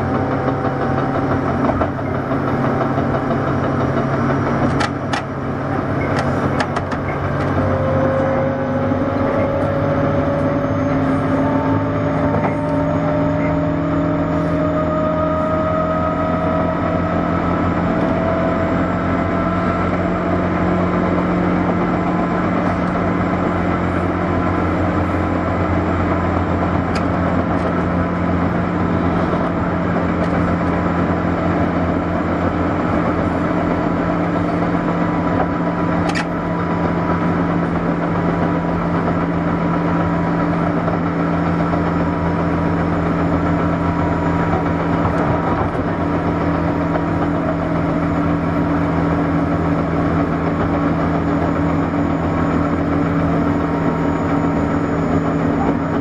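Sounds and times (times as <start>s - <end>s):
train motor hum: 0.0s - 56.0s
wheels rumbling on rail: 0.0s - 56.0s.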